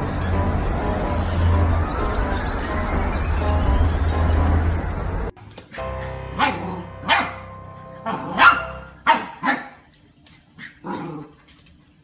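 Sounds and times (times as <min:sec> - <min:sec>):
puppy barking: 0:06.3 - 0:09.9.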